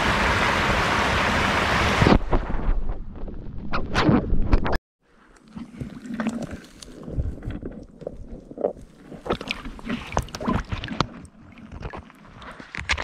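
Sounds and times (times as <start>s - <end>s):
stream water sloshing and splashing: 5.0s - 13.0s.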